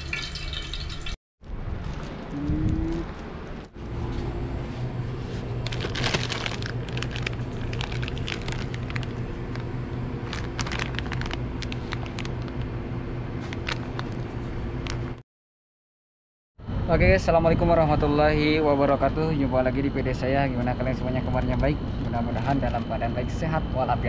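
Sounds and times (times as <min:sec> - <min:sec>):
steady low hum: 0:01.5 - 0:15.2, 0:16.6 - 0:24.0
plastic packets crinkling: 0:05.6 - 0:12.7, 0:13.5 - 0:14.3.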